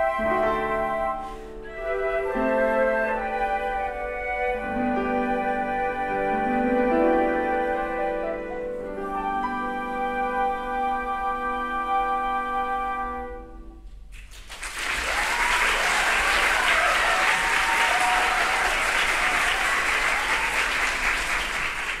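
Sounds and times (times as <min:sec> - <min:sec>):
flute ensemble chord: 0:00.0 - 0:13.8
audience applause: 0:14.1 - 0:22.0.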